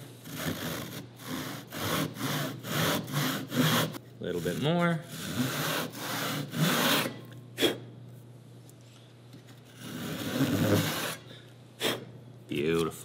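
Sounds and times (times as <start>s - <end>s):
hand saw sawing wood: 0.0s - 7.2s, 9.7s - 11.2s.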